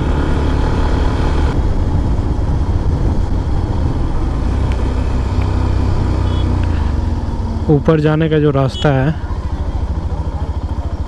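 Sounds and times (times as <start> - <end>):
wind rushing over microphone: 0.0 - 7.8
motorcycle engine running: 0.0 - 11.0.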